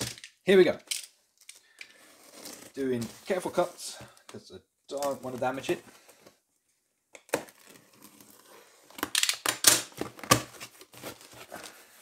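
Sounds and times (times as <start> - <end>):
cardboard scraping and crackling: 10.0 - 12.0.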